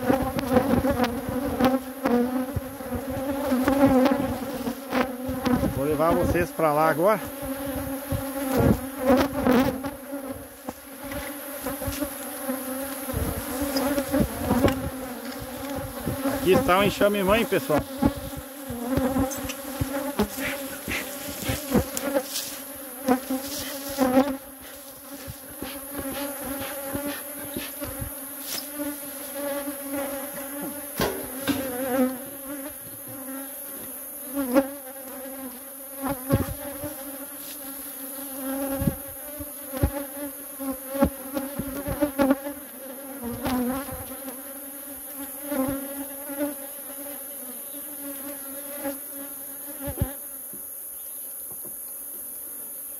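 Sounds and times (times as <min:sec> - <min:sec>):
honeybees buzzing: 0:00.0 - 0:52.9.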